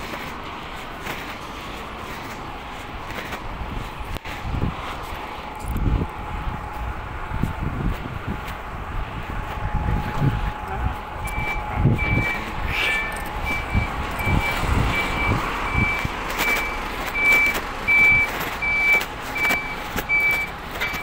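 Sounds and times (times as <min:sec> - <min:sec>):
truck reversing alarm beeping: 0:09.2 - 0:21.0.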